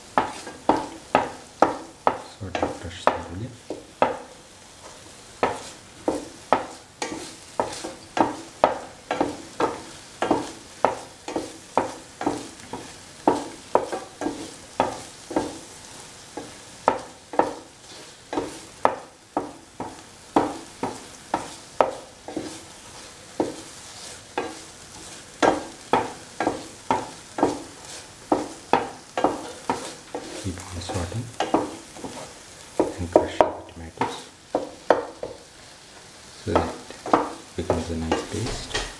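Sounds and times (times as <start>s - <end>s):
low sizzle of frying: 0.0s - 38.9s
metal spoon scraping pan: 6.5s - 15.5s, 20.8s - 32.4s, 36.9s - 38.9s.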